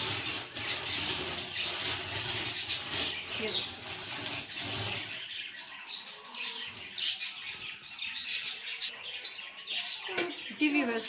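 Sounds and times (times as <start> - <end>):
steel wool scrubbing stove top: 0.0 - 5.6.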